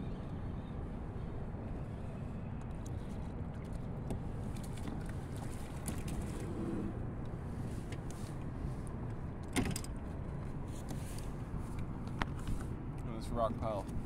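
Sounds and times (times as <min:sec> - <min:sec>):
wind rumble: 0:00.0 - 0:09.4
choppy water: 0:00.8 - 0:07.7.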